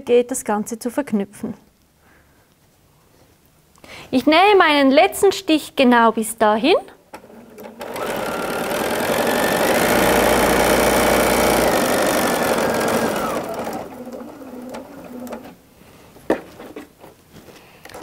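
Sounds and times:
sewing machine stitching: 0:07.2 - 0:15.6.

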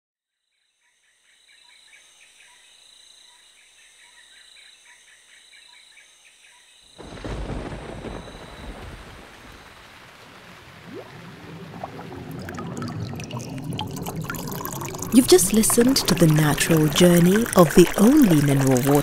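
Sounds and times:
crickets chirping: 0:02.5 - 0:10.0
thunder crash: 0:07.0 - 0:15.2
rain: 0:07.0 - 0:19.0.

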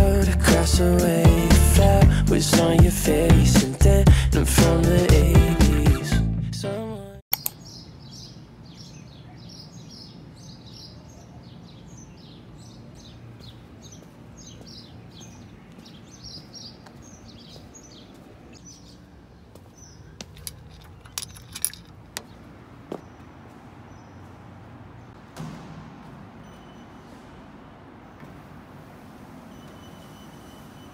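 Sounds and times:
sharp clicks: 0:07.3 - 0:07.6
small birds chirping: 0:07.3 - 0:25.2.

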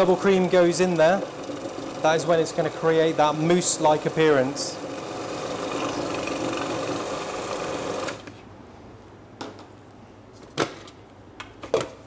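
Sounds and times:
food processor running: 0:00.0 - 0:08.3.

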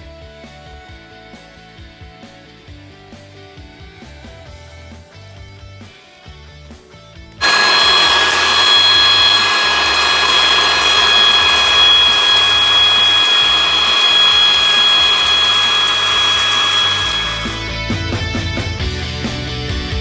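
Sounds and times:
high-speed motor whining: 0:07.4 - 0:17.9.

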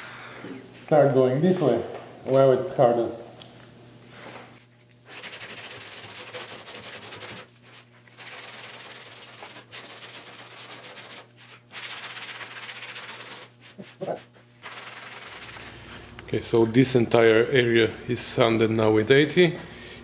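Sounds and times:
sanding block rasping: 0:05.1 - 0:15.7.

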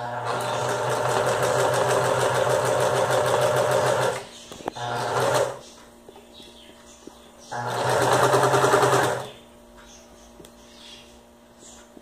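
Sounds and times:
sewing machine stitching: 0:00.0 - 0:05.6, 0:07.6 - 0:09.3.

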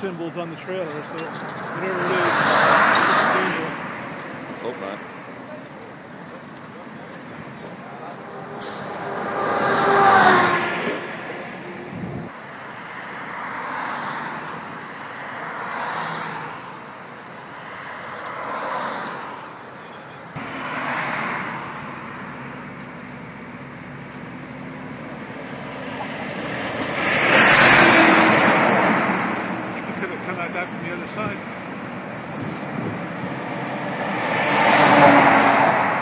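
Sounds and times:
highway traffic passing: 0:00.0 - 0:36.0.

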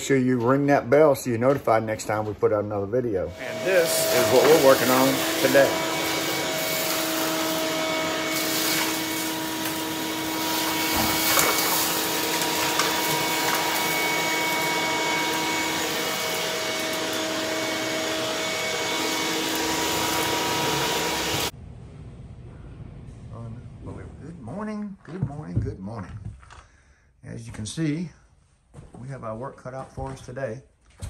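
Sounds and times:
shop vacuum running: 0:03.2 - 0:24.1.

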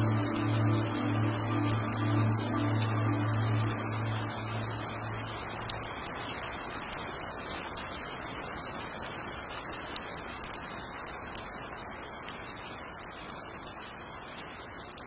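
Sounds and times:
steady hiss: 0:00.0 - 0:06.7.

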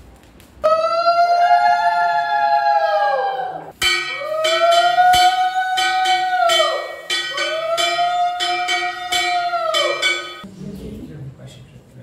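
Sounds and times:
conch shell blown: 0:03.8 - 0:10.4
hand bell ringing: 0:03.8 - 0:10.4.

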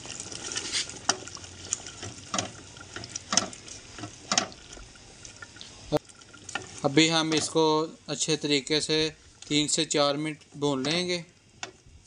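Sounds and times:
wet stirring of thick gravy: 0:00.0 - 0:07.7.

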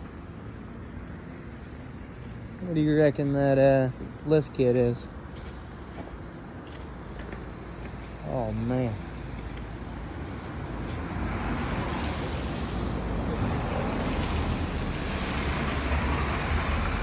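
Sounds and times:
rushing noise with low rumble: 0:09.1 - 0:17.0.

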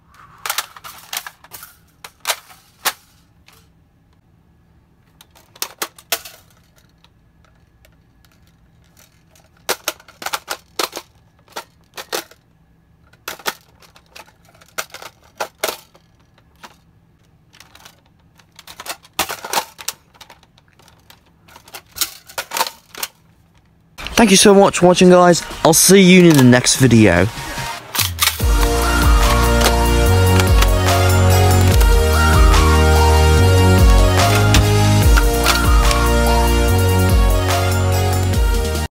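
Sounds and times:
toy blaster reloading clicks: 0:33.8 - 0:36.2.

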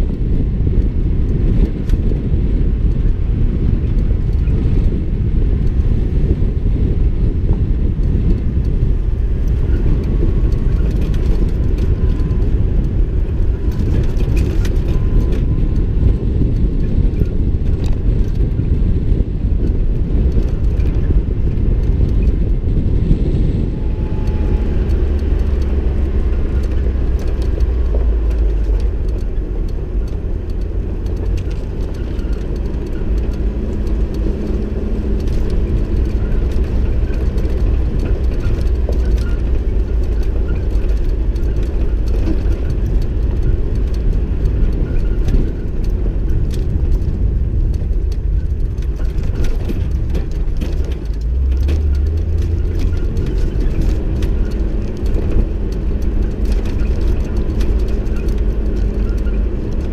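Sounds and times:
vehicle engine and tyres rumbling: 0:00.0 - 0:59.9
knocks and rattles from bumps: 0:24.1 - 0:59.9.

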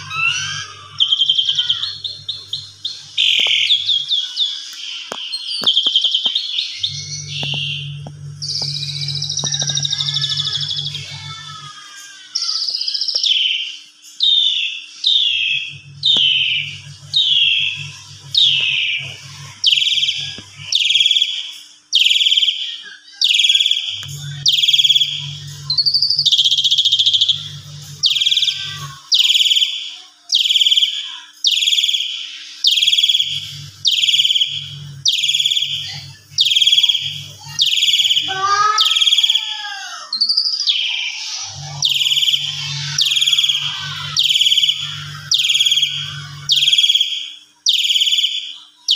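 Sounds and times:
starling calling: 0:00.0 - 0:48.9.

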